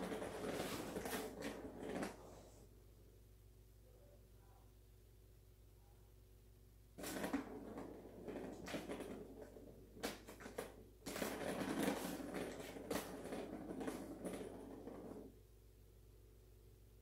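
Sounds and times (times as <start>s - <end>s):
cat scratching plastic toy: 0.0s - 2.2s, 7.0s - 15.3s.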